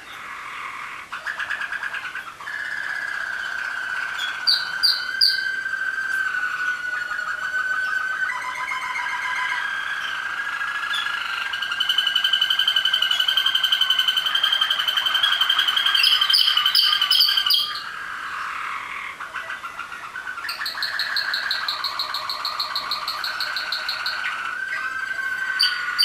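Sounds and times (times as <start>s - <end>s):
canaries singing trills: 0.0s - 26.0s.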